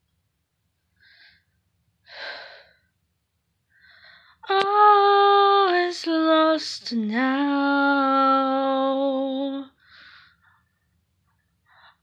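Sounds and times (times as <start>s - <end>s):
woman singing unaccompanied: 4.4s - 9.8s.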